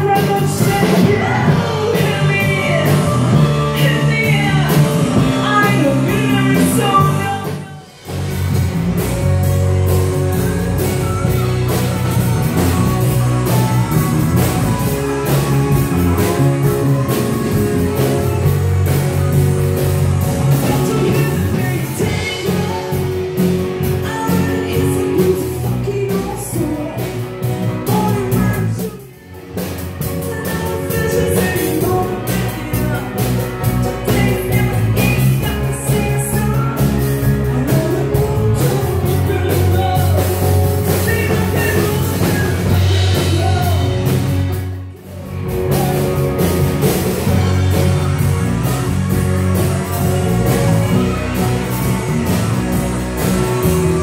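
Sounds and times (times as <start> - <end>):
person singing into a microphone: 0.0 - 8.0, 20.5 - 44.6
drum kit: 0.0 - 54.0
electric bass: 0.0 - 54.0
electric guitar: 0.0 - 54.0.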